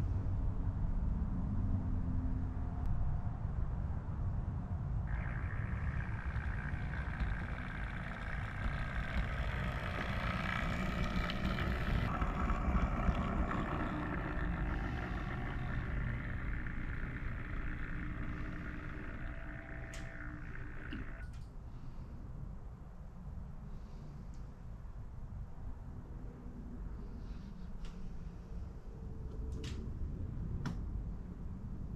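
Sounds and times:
model train rumbling: 0:05.1 - 0:21.3
high whine: 0:05.1 - 0:21.4.

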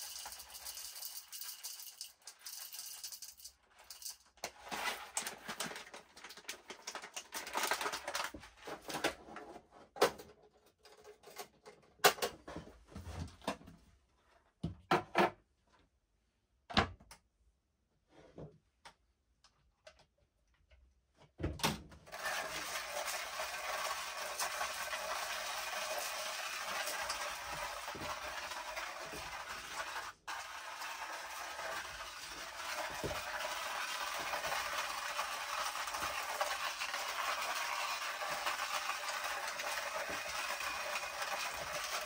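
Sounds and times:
coffee beans rattling: 0:00.0 - 0:08.3, 0:22.1 - 0:42.0
hand coffee grinder grinding: 0:00.0 - 0:08.4, 0:22.1 - 0:42.0.

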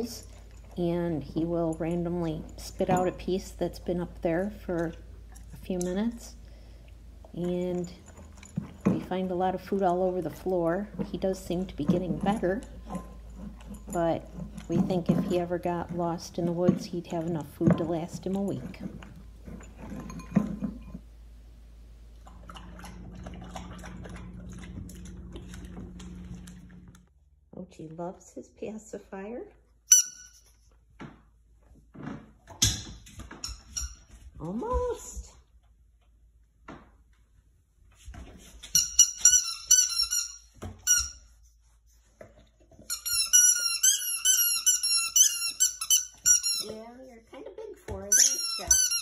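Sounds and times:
sloppy chewing in metal bowl: 0:00.0 - 0:21.2, 0:22.0 - 0:27.1
puppy chewing from a bowl: 0:00.0 - 0:27.1
squeaky toy squeaking: 0:29.9 - 0:30.4, 0:38.7 - 0:41.2, 0:42.9 - 0:46.9, 0:48.0 - 0:49.0.

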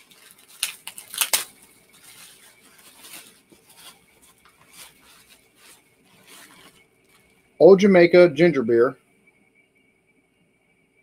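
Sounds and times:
packaging crinkling and rustling: 0:00.0 - 0:07.4.

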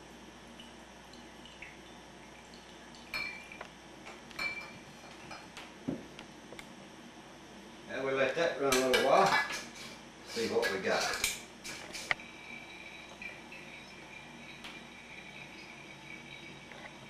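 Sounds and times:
liquid trickling through funnel: 0:00.5 - 0:03.7, 0:11.7 - 0:17.0
glass clinks: 0:04.4 - 0:04.8.

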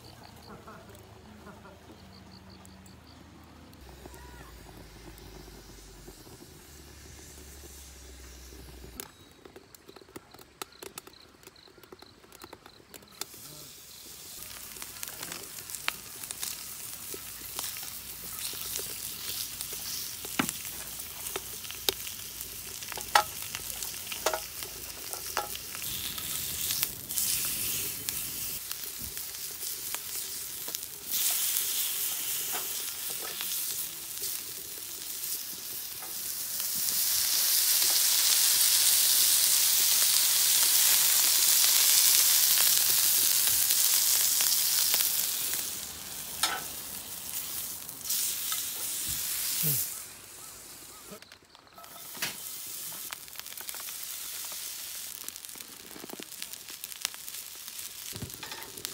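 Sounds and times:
pork sizzling in a frying pan: 0:03.8 - 0:09.0, 0:13.2 - 0:58.9
fat pops and clicks: 0:08.9 - 0:13.3.

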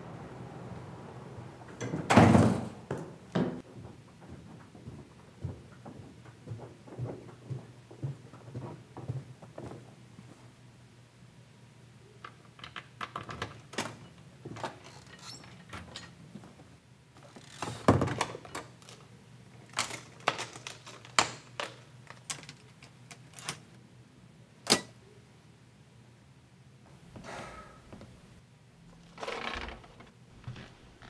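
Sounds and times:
sharp lock click: 0:24.7 - 0:25.0.

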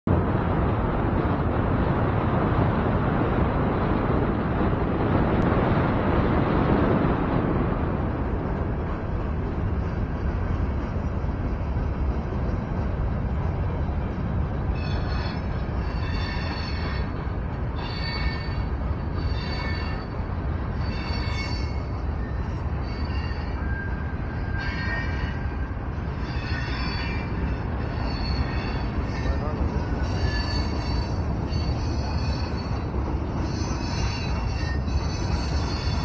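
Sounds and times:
freight train rumbling: 0:00.0 - 0:36.0
high-pitched wheel squeals: 0:14.7 - 0:17.2, 0:17.8 - 0:36.0.

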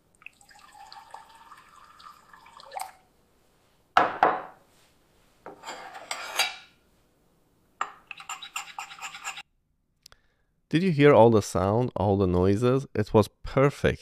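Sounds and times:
tea pouring into cup: 0:00.2 - 0:03.1
object knocked on wooden table: 0:04.0 - 0:04.6.

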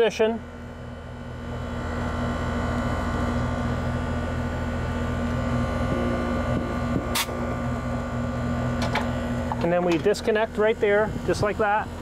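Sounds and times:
air conditioner unit humming: 0:00.0 - 0:12.0
sharp click: 0:07.1 - 0:07.4.

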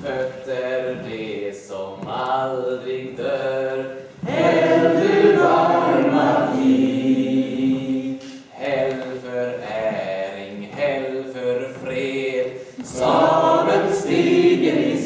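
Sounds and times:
group singing unaccompanied: 0:00.0 - 0:15.0.

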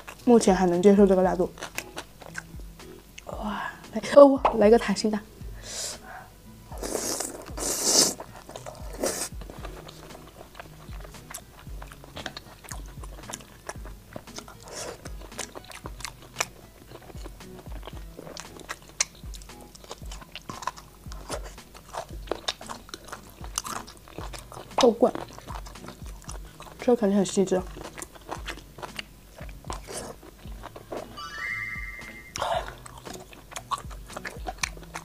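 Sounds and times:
wet chewing with mouth clicks: 0:00.0 - 0:03.3, 0:06.7 - 0:31.3, 0:32.0 - 0:35.0
wet bites and slurps: 0:06.8 - 0:27.0, 0:27.6 - 0:31.2, 0:32.3 - 0:35.0.

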